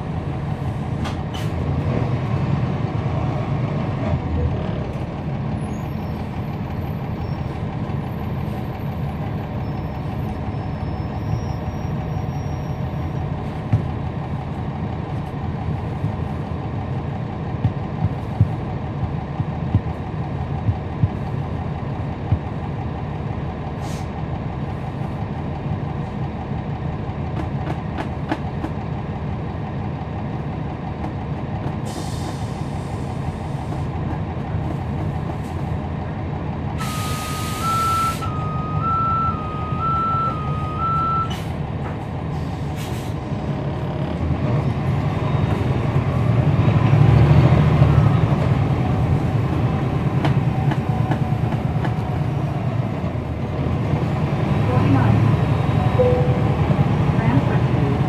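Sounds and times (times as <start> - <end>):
bus diesel engine running: 0.0 - 58.0
air hiss burst: 36.8 - 37.6
alternating two-tone beep: 55.9 - 56.7.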